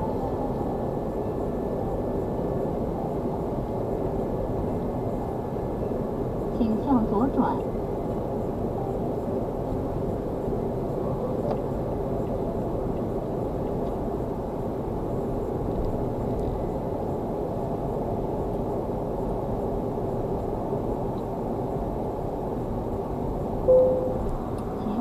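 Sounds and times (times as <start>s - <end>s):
faint steady hum: 22.4s - 25.0s.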